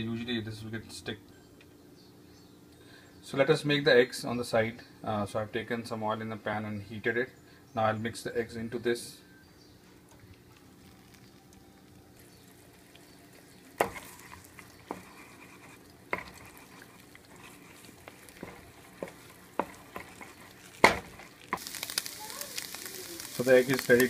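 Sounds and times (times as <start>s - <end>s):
eggs sizzling: 10.0s - 24.0s
spatula scraping pan: 13.4s - 21.7s.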